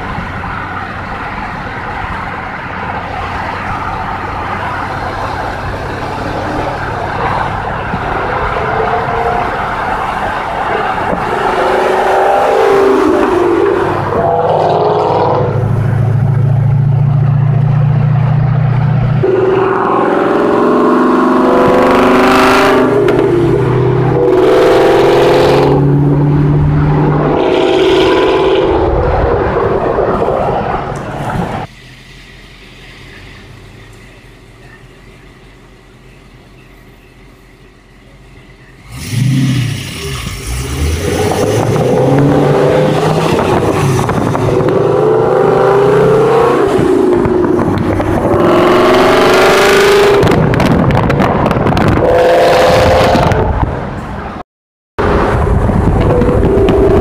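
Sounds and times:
car engine accelerating: 0:00.0 - 0:31.7, 0:38.7 - 0:54.4, 0:55.0 - 0:57.0
sharp engine rev: 0:19.2 - 0:29.6.

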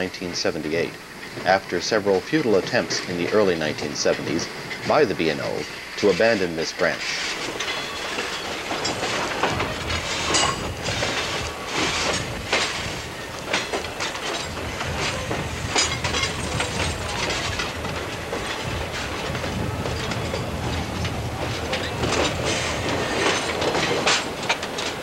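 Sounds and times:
train wheels clicking over rails: 0:00.0 - 0:25.0
steady low rumble: 0:09.4 - 0:25.0.

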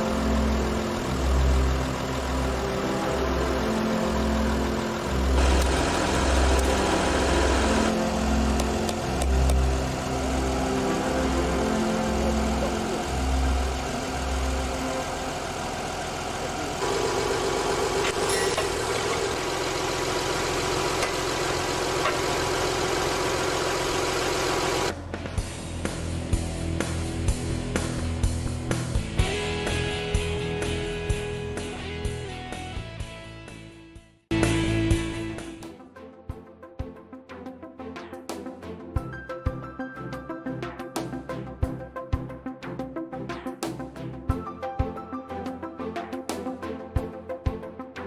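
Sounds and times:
tractor engine running: 0:00.0 - 0:29.9.

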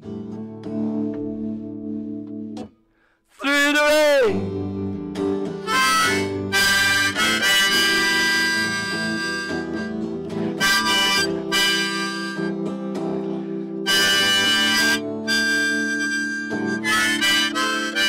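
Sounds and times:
strummed acoustic guitar: 0:00.0 - 0:02.7, 0:04.0 - 0:18.0
harmonica chords: 0:03.7 - 0:18.0.

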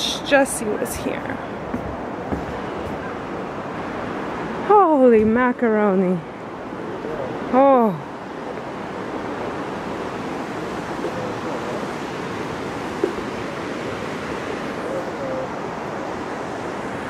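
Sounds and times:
distant river rushing: 0:00.0 - 0:17.0
light tap: 0:13.0 - 0:13.3.

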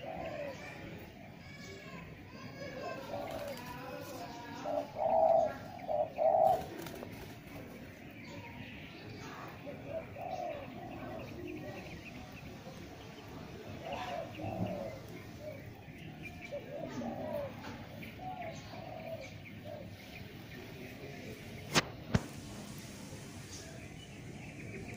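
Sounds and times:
doves cooing: 0:00.0 - 0:01.5, 0:02.4 - 0:08.2, 0:09.4 - 0:21.7.

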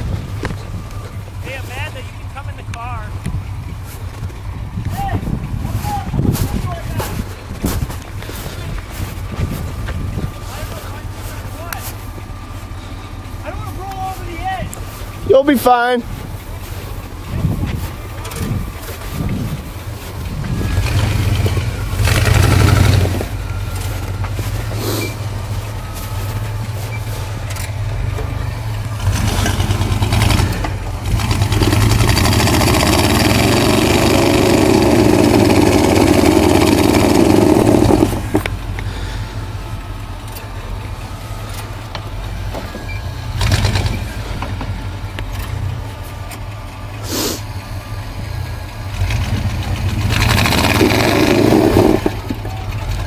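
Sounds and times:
truck engine rumbling and revving: 0:00.0 - 0:53.0.

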